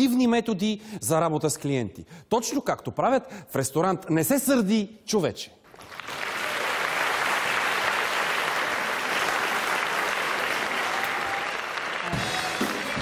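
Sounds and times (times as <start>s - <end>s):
audience applauding: 5.7s - 13.0s
music: 11.6s - 13.0s.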